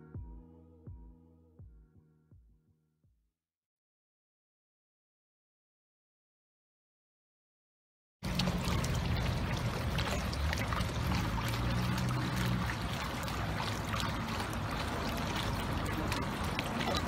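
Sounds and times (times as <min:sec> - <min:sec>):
fountain water splashing: 0:08.2 - 0:17.0.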